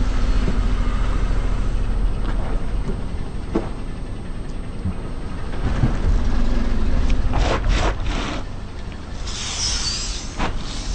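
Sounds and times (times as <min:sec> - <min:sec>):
car engine rumble: 0:00.0 - 0:10.9
brief hiss: 0:09.2 - 0:10.9.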